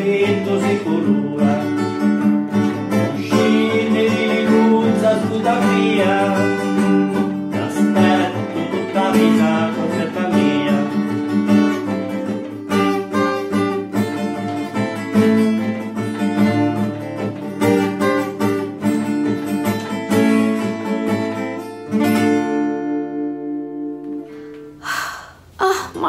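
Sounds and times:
strummed acoustic guitar chords: 0.0s - 24.8s.

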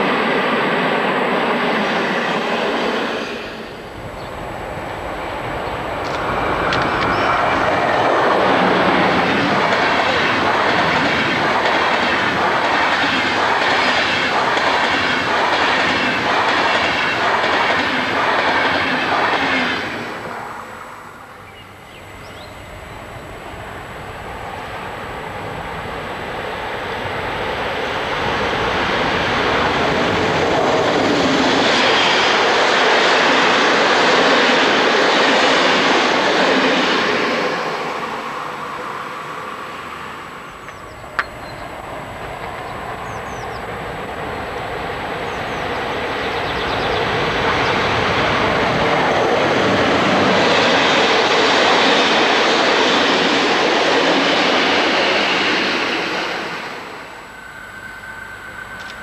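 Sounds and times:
train approaching: 0.0s - 59.0s
train wheels clattering: 6.0s - 20.2s.

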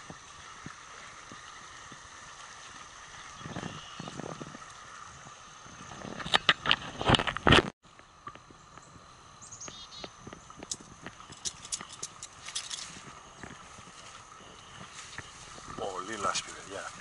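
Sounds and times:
footsteps in deep mud: 10.7s - 17.0s.

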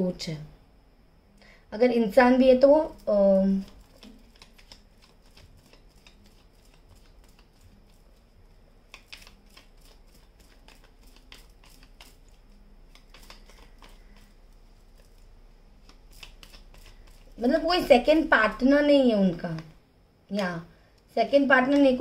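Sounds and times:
cards rustling and clicking: 3.0s - 8.2s, 8.8s - 18.2s.

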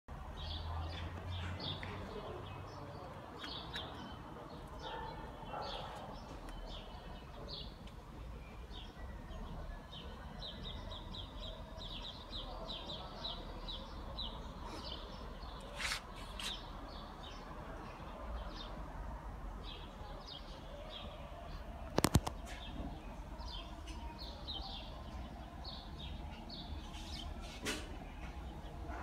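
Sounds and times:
small birds chirping: 0.4s - 18.8s, 19.6s - 29.0s.

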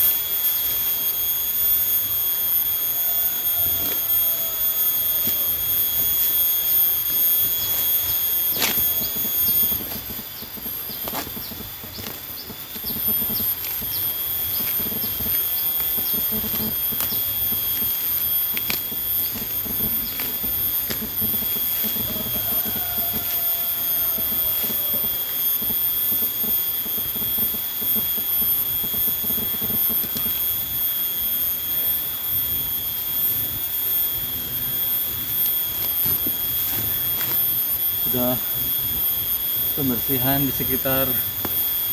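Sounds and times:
insects droning: 0.0s - 41.9s
weeds rustling and snapping: 7.4s - 23.4s, 35.7s - 38.2s.

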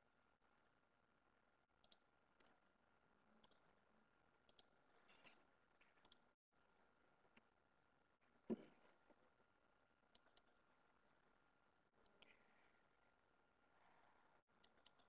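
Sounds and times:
faint clicks: 1.8s - 2.6s, 3.4s - 3.7s, 4.4s - 6.2s, 14.6s - 15.0s.

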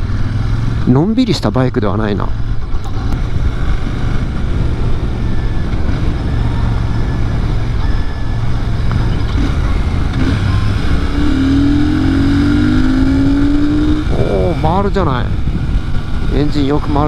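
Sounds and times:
motorcycle engine running: 0.0s - 17.0s
wind on microphone: 13.1s - 16.3s.

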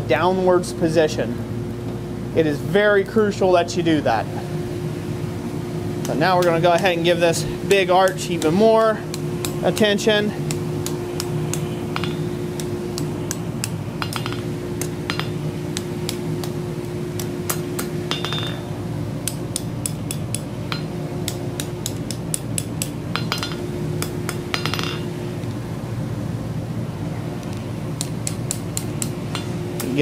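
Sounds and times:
hammer ringing on hot steel: 6.0s - 25.2s, 28.0s - 30.0s.

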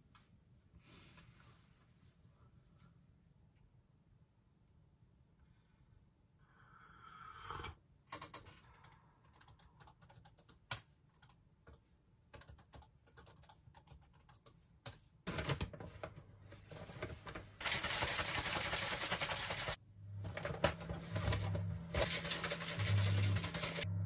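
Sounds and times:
faint keyboard typing: 8.1s - 16.1s, 16.7s - 23.9s.

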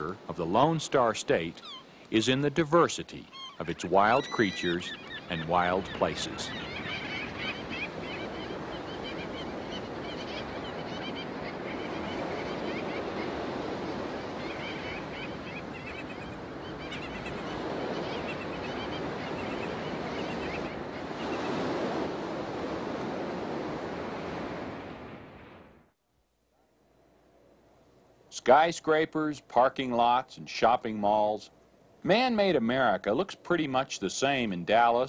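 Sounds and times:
gull calls: 1.5s - 2.0s, 3.2s - 13.4s, 14.2s - 21.6s
surf breaking on beach: 17.4s - 25.8s.

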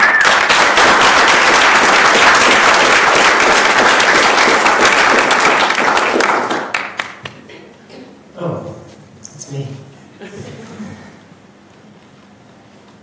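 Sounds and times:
audience applauding: 0.0s - 7.4s.

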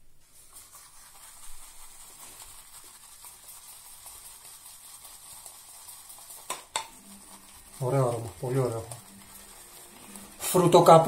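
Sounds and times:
shaving brush lathering soap: 0.2s - 11.0s.

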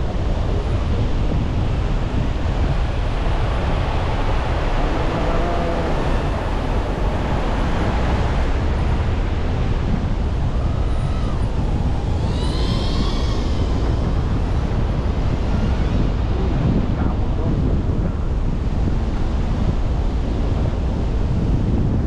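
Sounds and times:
wind buffeting microphone: 0.0s - 22.0s
faint gliding tones: 10.1s - 19.5s.

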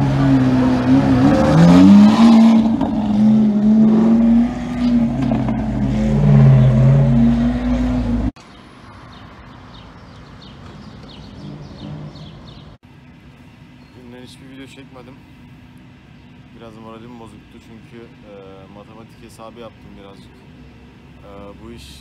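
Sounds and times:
sports car engine revving: 0.0s - 8.4s
faint street ambience: 0.0s - 22.0s.

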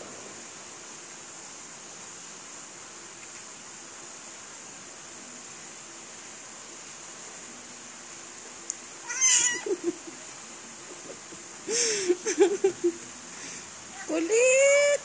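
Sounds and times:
choppy cat cries: 9.0s - 9.9s
kitten mewing: 9.0s - 10.0s.

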